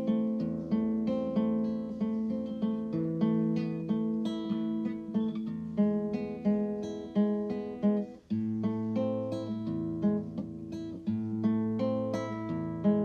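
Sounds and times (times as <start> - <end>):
acoustic guitar picking: 0.0 - 13.0.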